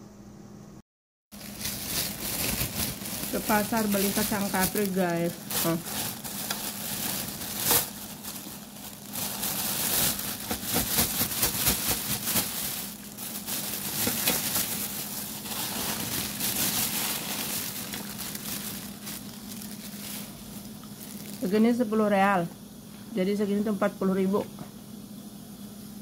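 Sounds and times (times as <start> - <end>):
plastic bag crinkling: 1.3 - 21.8.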